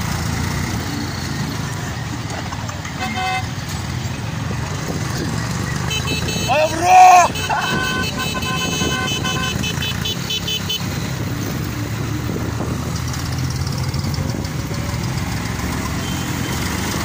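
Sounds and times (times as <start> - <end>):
motorcycle engine running: 0.0 - 17.0
tractor engine running: 0.0 - 17.0
vehicle horns beeping: 2.8 - 3.8, 5.7 - 11.1, 15.9 - 16.8.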